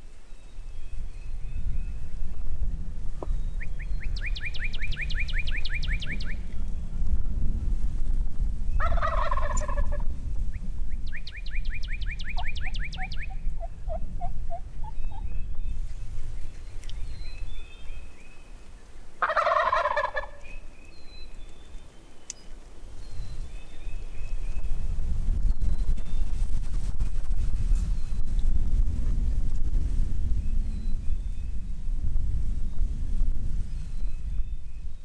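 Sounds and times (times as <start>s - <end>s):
bird chirps: 3.2s - 6.6s, 10.5s - 18.7s
songbird trilling: 3.4s - 6.5s, 10.5s - 15.8s
turkey gobbling: 8.8s - 10.0s, 11.8s - 15.2s, 19.2s - 20.5s.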